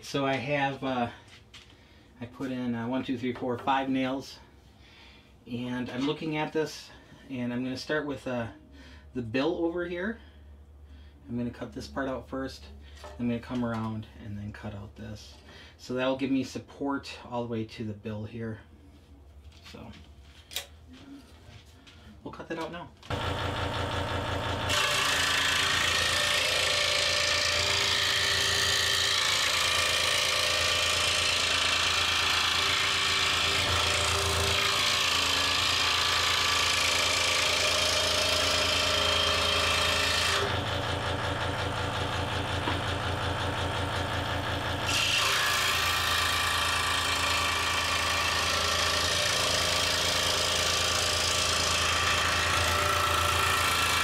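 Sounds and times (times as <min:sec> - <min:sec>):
scroll saw buzzing: 0:23.1 - 0:54.0.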